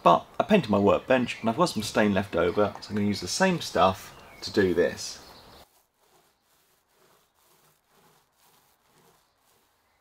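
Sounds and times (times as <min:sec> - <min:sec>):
foam roller swishing: 0:03.1 - 0:10.0.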